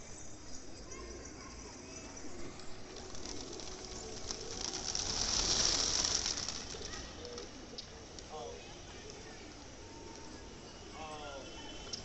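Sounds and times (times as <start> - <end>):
pigeon wings fluttering: 2.7 - 8.2.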